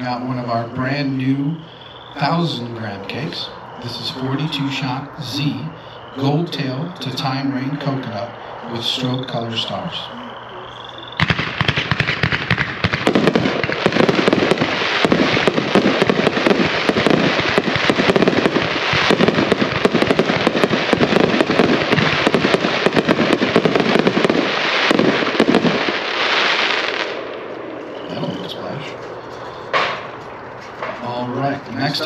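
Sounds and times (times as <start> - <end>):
fireworks cake firing: 11.1 - 27.4.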